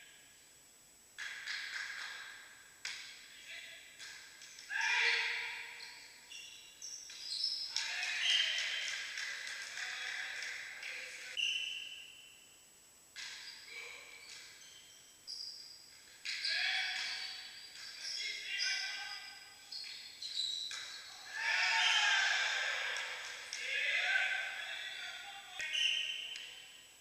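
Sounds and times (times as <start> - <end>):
shoe squeaks: 5.7 - 7.7, 11.4 - 12.3, 13.4 - 21.2, 25.6 - 26.7
players calling: 7.1 - 11.8, 20.7 - 26.8.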